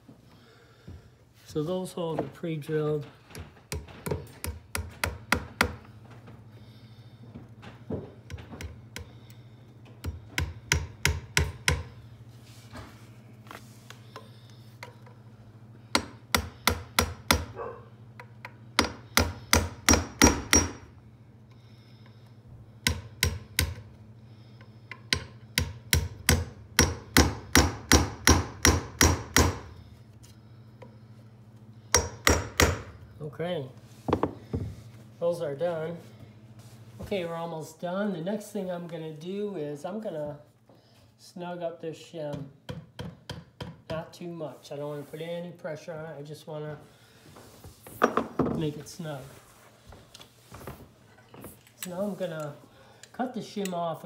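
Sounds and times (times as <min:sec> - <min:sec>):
hammer tapping nails into wood: 0:03.3 - 0:05.8, 0:10.0 - 0:11.9, 0:16.0 - 0:17.5, 0:18.4 - 0:20.8, 0:24.9 - 0:29.7.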